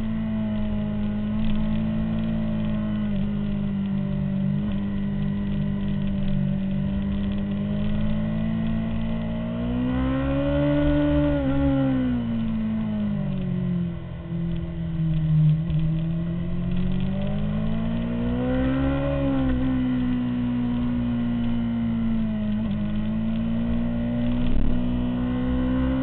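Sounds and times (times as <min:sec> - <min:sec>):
motorcycle engine at high revs: 0:00.0 - 0:26.0.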